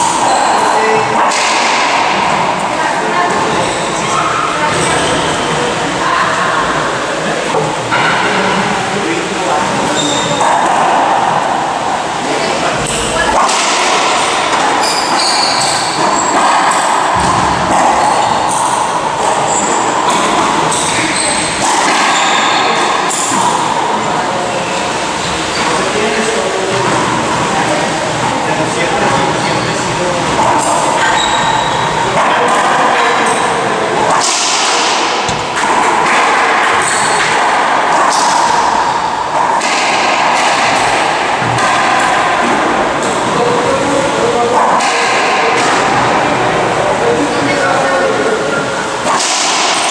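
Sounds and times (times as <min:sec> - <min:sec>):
loud steady background noise: 0:00.0 - 0:49.9
ball smacking court walls: 0:34.0 - 0:38.8.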